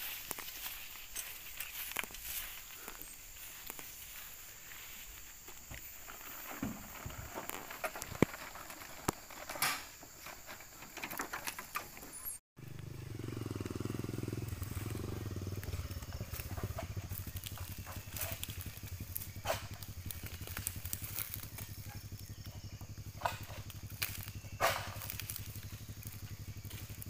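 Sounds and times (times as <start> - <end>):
low engine hum: 12.6 - 27.0.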